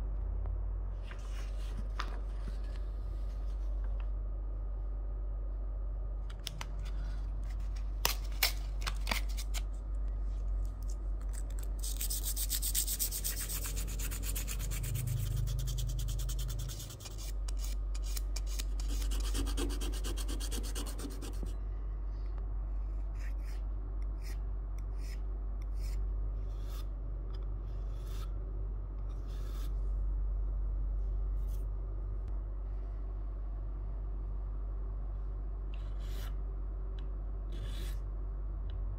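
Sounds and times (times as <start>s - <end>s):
file rasping: 11.8s - 21.5s.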